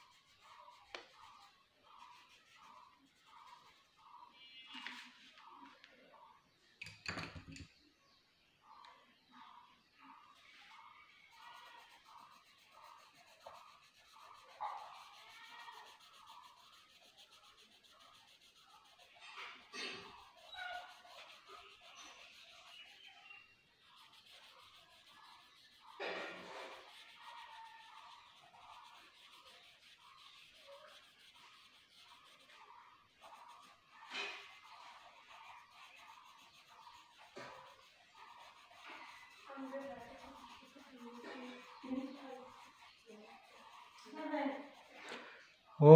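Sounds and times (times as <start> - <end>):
pen scratching on paper: 0.0 - 5.6, 9.4 - 45.2.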